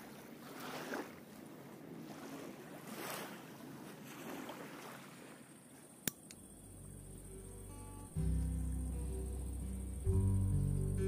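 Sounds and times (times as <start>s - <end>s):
river water lapping at bank: 0.0s - 7.4s.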